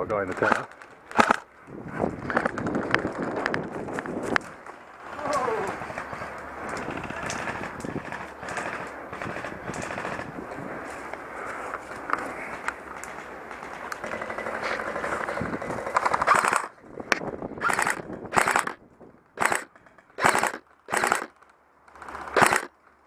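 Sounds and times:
airsoft rifle rapid fire: 0:00.5 - 0:01.4, 0:06.9 - 0:10.3, 0:15.8 - 0:16.7, 0:17.6 - 0:18.8, 0:19.4 - 0:21.3, 0:22.1 - 0:22.7.

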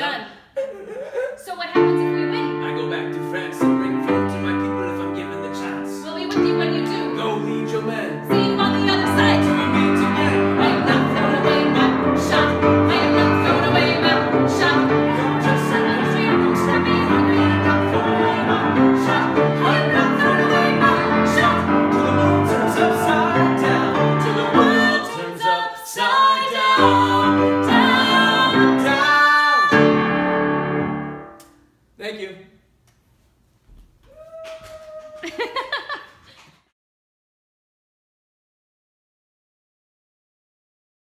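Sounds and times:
grand piano accompaniment: 0:01.8 - 0:25.2, 0:26.8 - 0:31.4.

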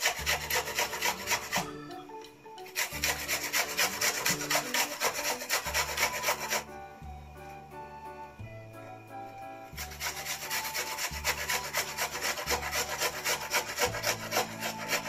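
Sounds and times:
onion rasping on hand grater: 0:00.0 - 0:01.7, 0:02.7 - 0:06.7, 0:09.7 - 0:15.0.

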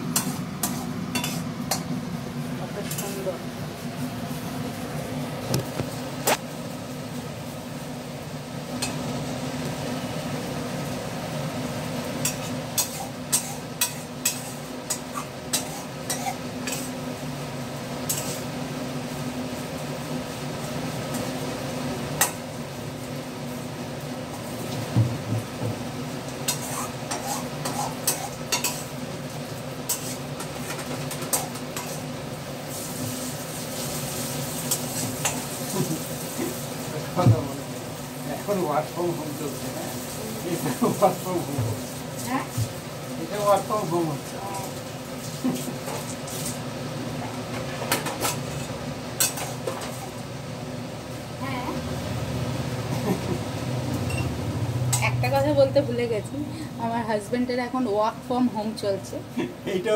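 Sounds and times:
food sizzling in a wok: 0:00.0 - 0:59.9
metal spatula scraping pan: 0:00.1 - 0:01.5, 0:12.2 - 0:17.0, 0:26.5 - 0:28.9, 0:29.9 - 0:32.1.

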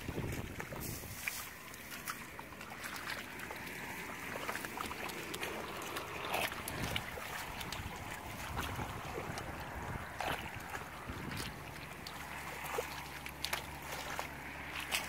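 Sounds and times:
wind on microphone: 0:00.0 - 0:01.3, 0:06.2 - 0:11.8
hands splashing in muddy water: 0:00.0 - 0:15.0.

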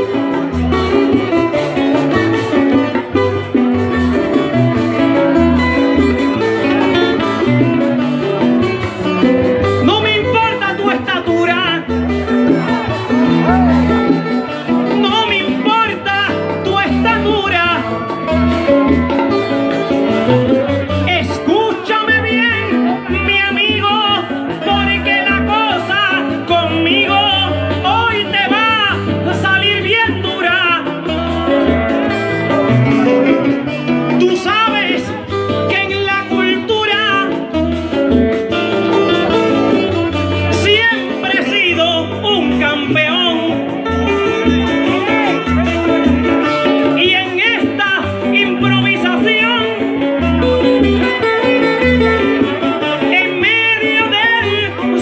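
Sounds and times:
plucked strings: 0:00.0 - 0:55.0
man singing into a microphone: 0:06.6 - 0:55.0.

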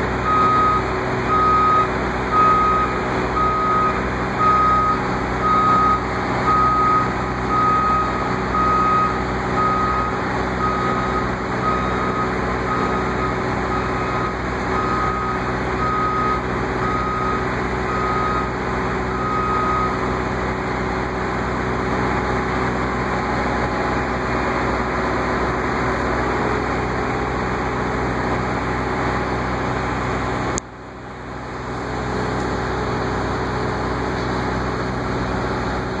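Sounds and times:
diesel machinery engine running: 0:00.0 - 0:36.0
reversing alarm beeps: 0:00.2 - 0:18.5, 0:19.1 - 0:20.0.

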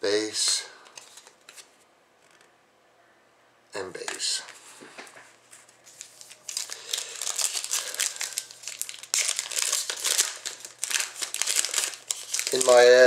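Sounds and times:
foil wrapper crinkling and tearing: 0:05.8 - 0:13.0.

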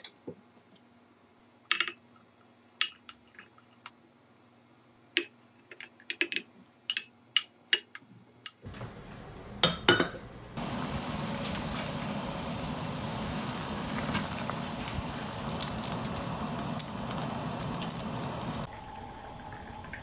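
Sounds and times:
pot boiling hiss: 0:10.4 - 0:18.7.

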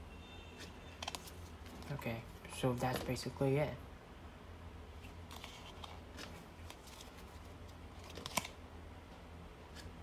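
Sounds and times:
playing cards rustling and clicking: 0:00.6 - 0:03.4, 0:05.0 - 0:08.6, 0:09.7 - 0:10.0.

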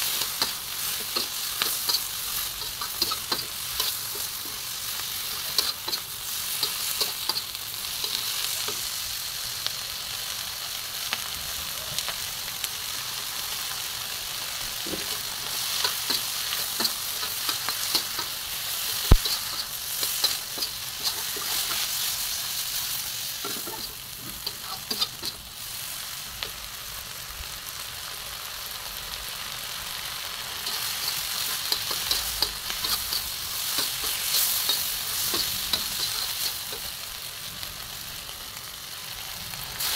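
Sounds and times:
metal spatula scraping a pan: 0:00.0 - 0:08.8, 0:14.9 - 0:25.6, 0:30.6 - 0:36.9
food sizzling in a wok: 0:00.0 - 0:39.9.

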